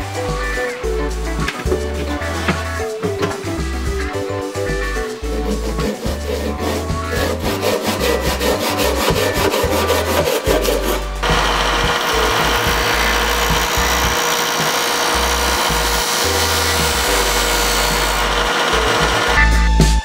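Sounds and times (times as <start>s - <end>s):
disc sander grinding: 5.2s - 19.4s
handsaw cutting wood: 5.2s - 19.4s.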